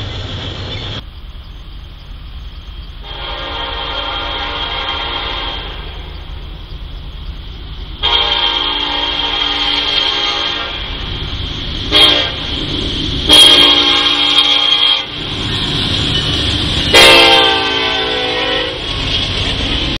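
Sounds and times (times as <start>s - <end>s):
low rumble of passing train: 0.0s - 20.0s
locomotive air horn blasts: 3.0s - 6.0s, 8.0s - 11.0s, 11.9s - 12.5s, 13.2s - 15.2s, 16.9s - 18.8s.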